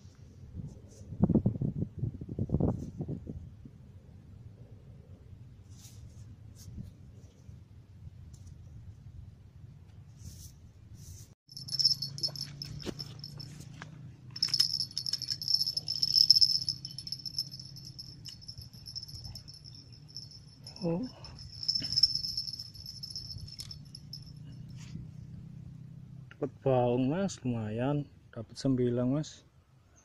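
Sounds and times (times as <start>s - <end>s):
low hum: 11.5s - 25.8s.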